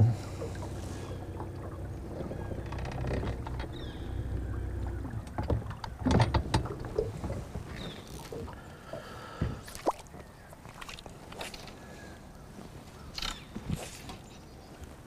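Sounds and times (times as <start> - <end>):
electric trolling motor humming: 0.0 - 7.0
knocks and clatter on metal boat: 0.0 - 8.5.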